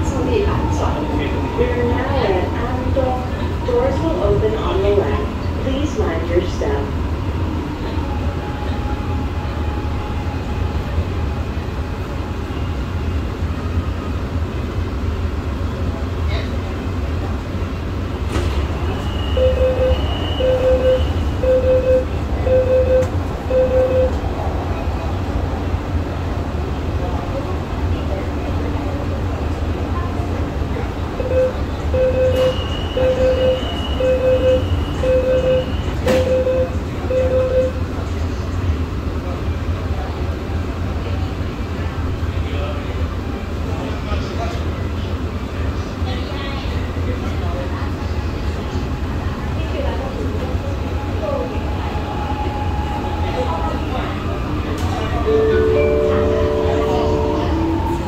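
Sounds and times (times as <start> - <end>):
metro train rumbling: 0.0 - 58.0
train doors sliding shut: 18.2 - 19.4, 32.3 - 33.9, 35.7 - 36.5
door warning beeps: 19.0 - 24.2, 31.2 - 37.8.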